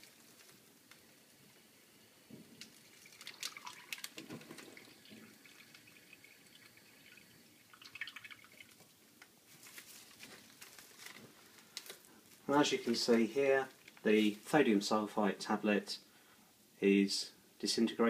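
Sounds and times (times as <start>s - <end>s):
plastic bag and gloves crinkling: 0.0s - 0.7s, 9.4s - 14.8s
water dripping into plastic bag: 2.6s - 12.1s, 13.6s - 14.3s.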